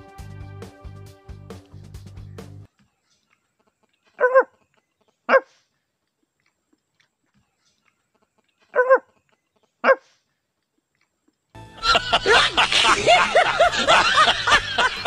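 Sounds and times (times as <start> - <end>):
dog barking: 4.2 - 4.6, 5.3 - 5.6, 8.7 - 9.2, 9.8 - 10.1.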